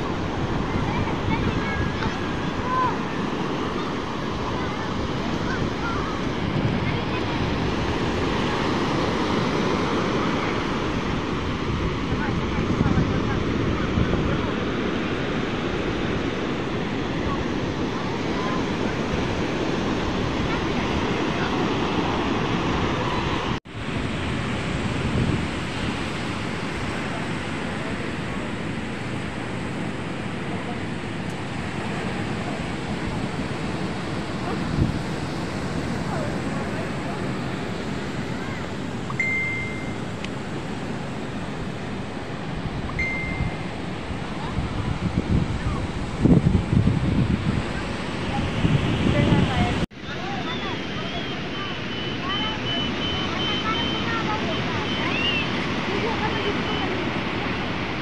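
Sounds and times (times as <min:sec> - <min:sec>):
wind buffeting microphone: 0:00.0 - 0:39.1, 0:39.8 - 0:58.0
surf breaking on beach: 0:00.0 - 0:58.0
short steady high tone: 0:39.1 - 0:40.2, 0:42.9 - 0:43.7.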